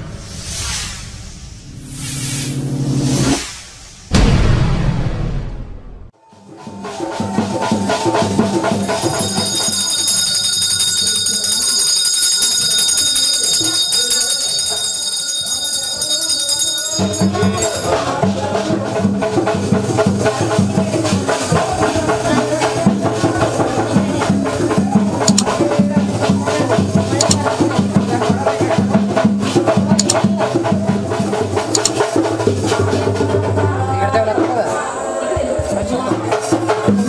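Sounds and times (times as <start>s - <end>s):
steady drum beat: 6.5s - 14.9s, 16.9s - 34.0s
high ringing tones: 8.8s - 18.2s.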